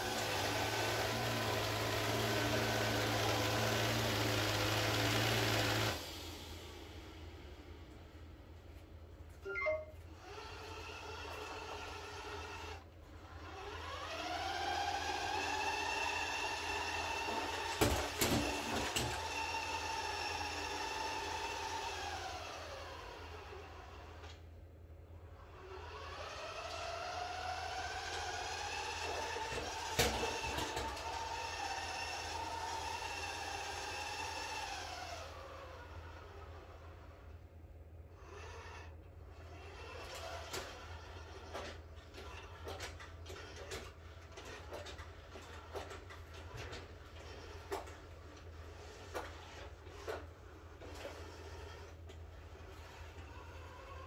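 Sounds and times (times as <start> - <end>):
robot vacuum motor whine: 50.8 - 54.0.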